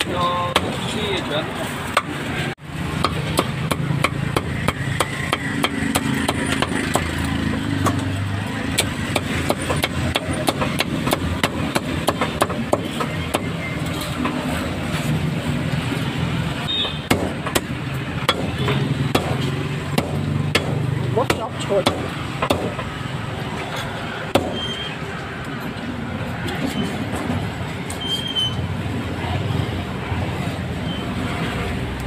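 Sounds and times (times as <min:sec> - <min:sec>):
cleaver chopping meat: 0:02.9 - 0:13.6, 0:17.0 - 0:23.0, 0:24.3 - 0:24.6.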